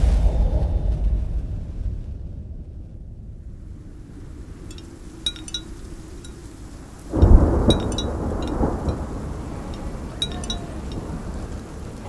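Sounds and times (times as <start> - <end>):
steady rain: 3.2 - 12.0
thunderclap rolling: 3.3 - 12.0
wind bell tinkling: 4.7 - 11.3.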